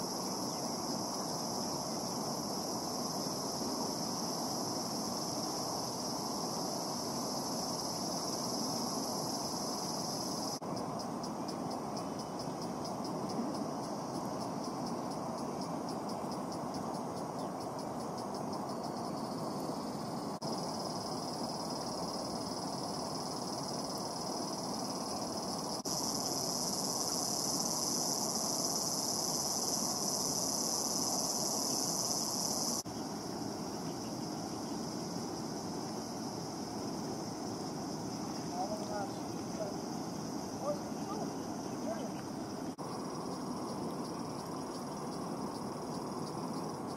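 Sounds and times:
insects shrilling: 0:18.3 - 0:46.9.

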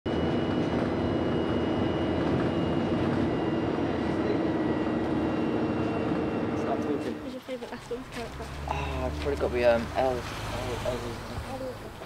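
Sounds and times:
faint high whines: 0:00.1 - 0:08.0
bus interior drone and rumble: 0:00.1 - 0:12.0.

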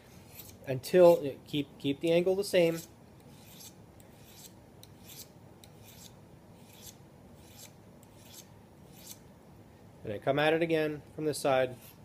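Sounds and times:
hand file scraping blade edge: 0:00.1 - 0:01.2, 0:02.7 - 0:09.2.

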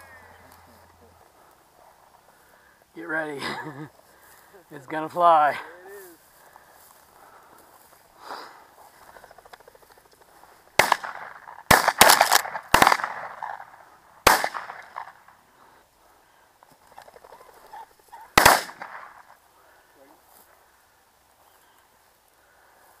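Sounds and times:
shotguns firing: 0:10.8 - 0:15.2, 0:18.4 - 0:19.2.

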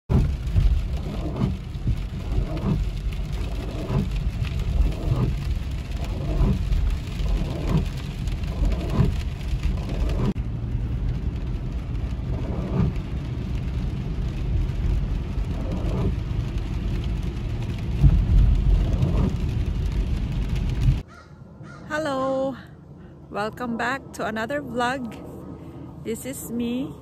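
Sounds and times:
road and engine rumble: 0:00.0 - 0:27.0
windshield wipers swishing: 0:00.1 - 0:21.0
rain on windshield: 0:00.1 - 0:21.1.

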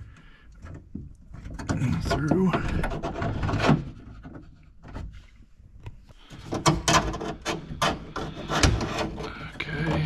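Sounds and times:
scraping rustle: 0:01.2 - 0:05.5, 0:06.2 - 0:10.0.

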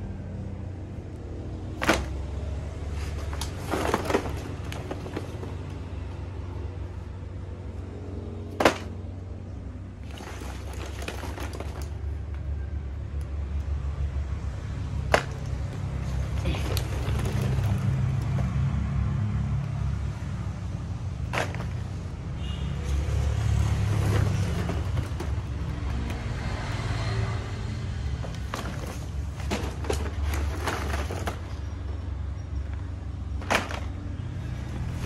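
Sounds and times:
plastic balls clattering: 0:01.0 - 0:07.1, 0:08.4 - 0:09.3, 0:09.9 - 0:12.6, 0:14.9 - 0:18.6, 0:21.1 - 0:22.4, 0:23.0 - 0:26.8, 0:28.0 - 0:35.0
plastic packs rustling: 0:01.4 - 0:06.8, 0:09.9 - 0:12.4, 0:14.9 - 0:18.6, 0:21.2 - 0:26.9, 0:28.0 - 0:35.0.

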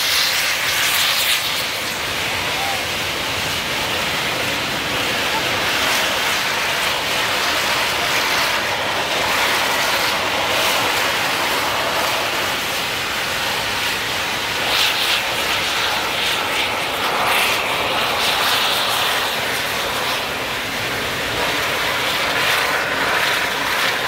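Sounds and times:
steam locomotive hissing steam: 0:00.0 - 0:24.0.

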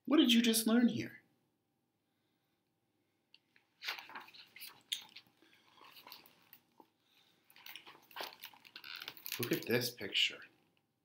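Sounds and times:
paper page rustling and turning: 0:03.8 - 0:06.8, 0:07.5 - 0:09.8.

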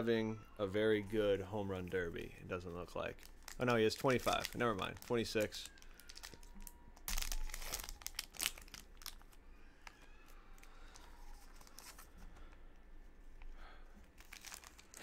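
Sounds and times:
cards rustling: 0:02.6 - 0:15.0
plastic wrapper crinkling: 0:03.0 - 0:12.5, 0:14.2 - 0:15.0.

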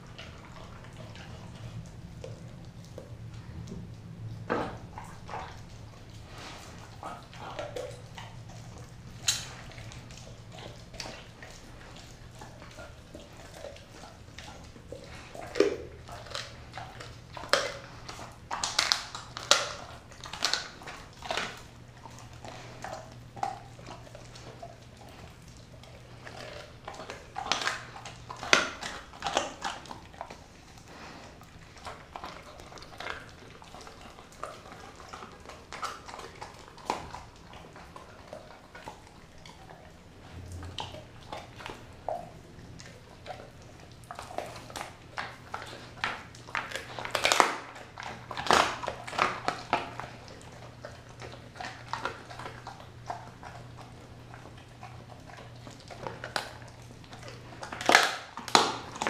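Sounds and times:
dog chewing and licking: 0:00.0 - 0:59.0
clicks and smacks: 0:09.2 - 0:12.2.

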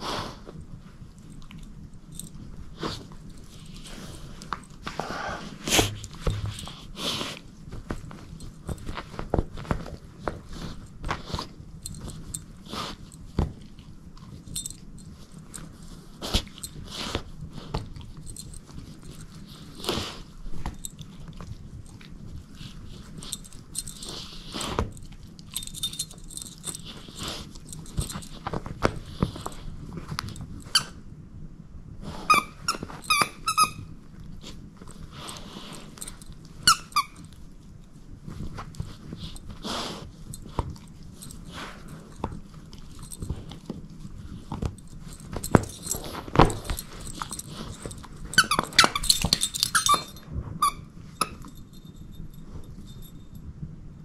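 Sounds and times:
dog chewing: 0:00.1 - 0:31.0, 0:32.2 - 0:53.3
squeaky toy squeaking: 0:32.3 - 0:33.9, 0:36.6 - 0:37.2, 0:48.4 - 0:51.4.

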